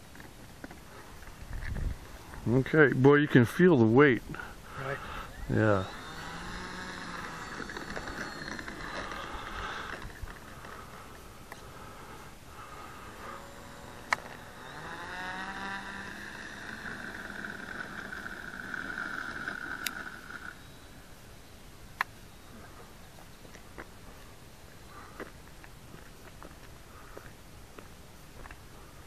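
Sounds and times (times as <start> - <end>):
model plane motor whining: 4.3 - 21.1
sharp clicks: 13.9 - 20.6.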